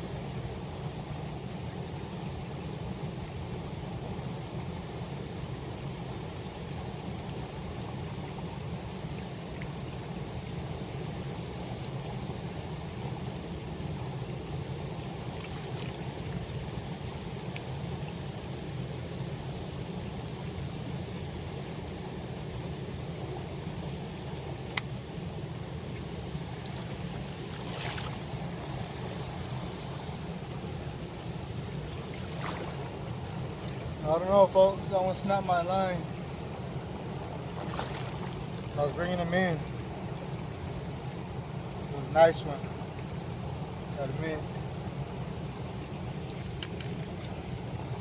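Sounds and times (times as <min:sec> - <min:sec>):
river water rushing: 0:07.6 - 0:17.9, 0:22.3 - 0:48.0
water splash: 0:26.6 - 0:28.3, 0:32.0 - 0:33.5, 0:37.6 - 0:38.7.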